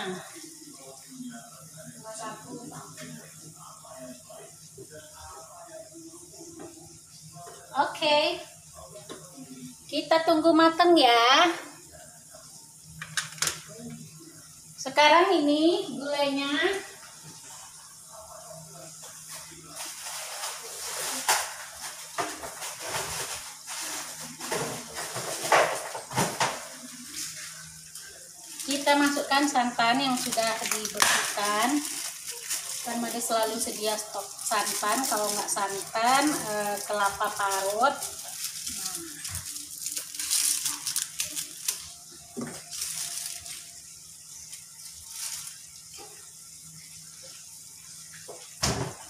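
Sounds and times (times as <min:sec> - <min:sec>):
food sizzling in a frying pan: 0:00.0 - 0:49.0
plastic bag crinkling: 0:28.4 - 0:45.8
pots and utensils knocking: 0:30.8 - 0:31.6.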